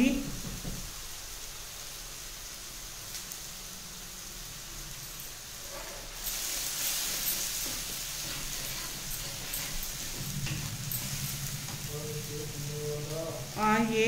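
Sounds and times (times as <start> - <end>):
paste sizzling in oil: 0.0 - 14.0
ladle stirring: 5.6 - 13.1.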